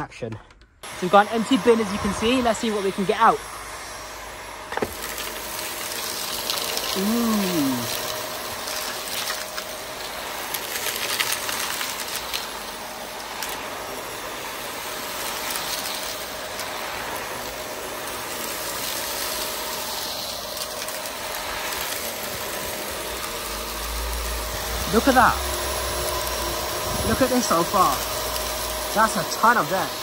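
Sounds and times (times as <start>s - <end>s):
vacuum cleaner running: 0.8s - 30.0s.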